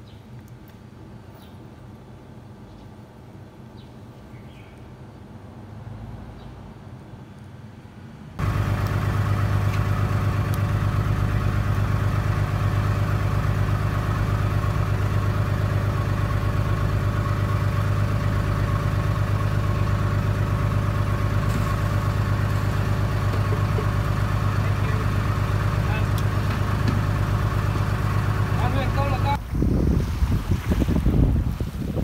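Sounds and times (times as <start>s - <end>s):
boat engine humming: 8.4s - 31.9s.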